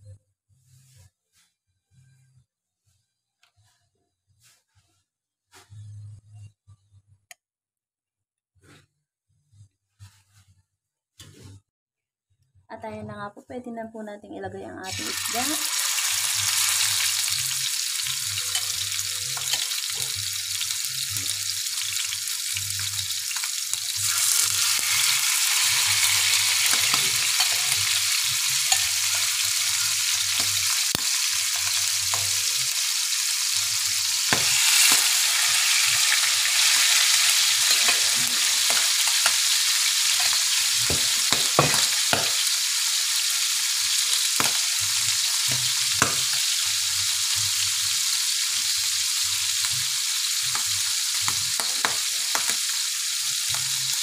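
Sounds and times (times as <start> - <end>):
fish sizzling in hot oil: 14.9 - 54.0
oil crackling and popping: 14.9 - 54.0.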